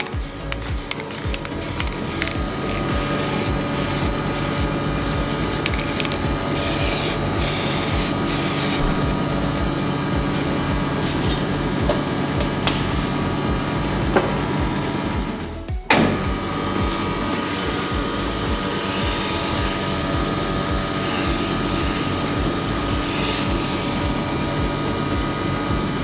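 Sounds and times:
aerosol spray can hissing: 0:00.0 - 0:09.0, 0:17.3 - 0:26.0
wood lathe humming: 0:16.4 - 0:26.0.

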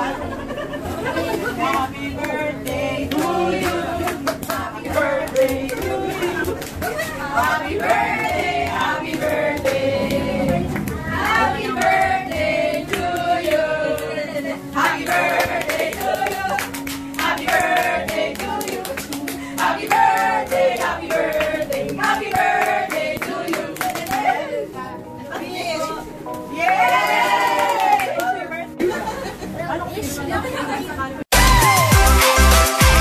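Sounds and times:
group singing birthday song: 0:00.0 - 0:27.5
hands clapping along: 0:01.7 - 0:07.0, 0:15.4 - 0:24.3.

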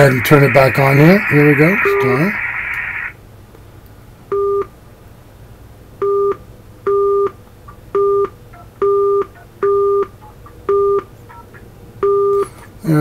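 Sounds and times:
short keypad beeps: 0:08.0 - 0:12.4.

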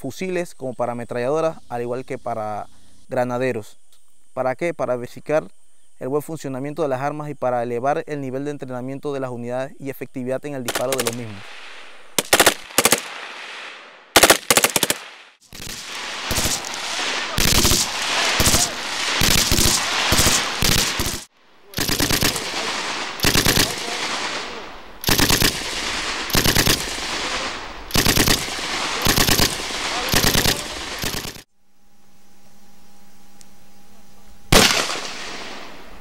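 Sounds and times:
machine gun bursts: 0:10.7 - 0:11.5, 0:12.2 - 0:13.3, 0:14.2 - 0:31.5
gunshot echoes: 0:10.7 - 0:31.4, 0:34.5 - 0:35.9
rapid rifle shots: 0:10.7 - 0:31.5.

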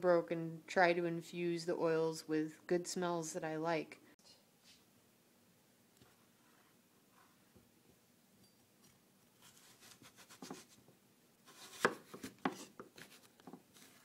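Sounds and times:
knife slicing on cutting board: 0:09.4 - 0:10.8, 0:11.5 - 0:13.2.

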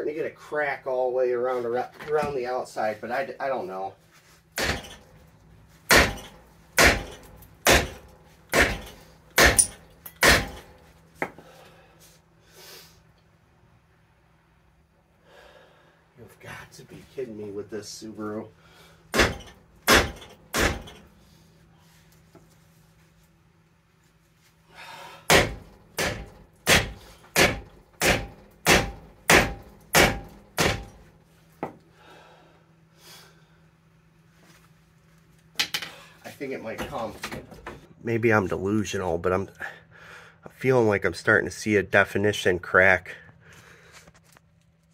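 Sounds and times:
hammer striking metal hub: 0:05.9 - 0:10.6.

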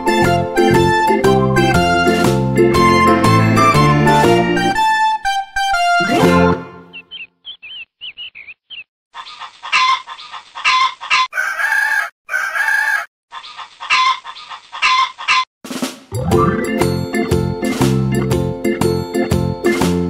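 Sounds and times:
music: 0:00.0 - 0:06.9, 0:15.7 - 0:20.0
chick peeps: 0:07.0 - 0:15.5
hen clucking: 0:07.1 - 0:15.5.

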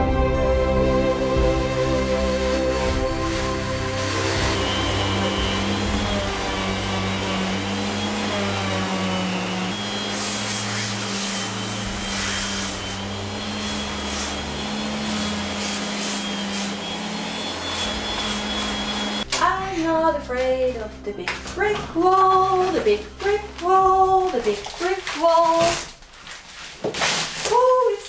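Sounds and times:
electric sander grinding brick: 0:00.9 - 0:19.3.

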